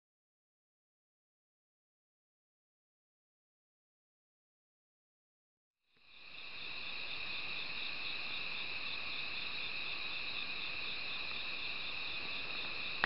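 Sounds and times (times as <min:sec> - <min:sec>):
crickets chirping: 0:05.9 - 0:13.0.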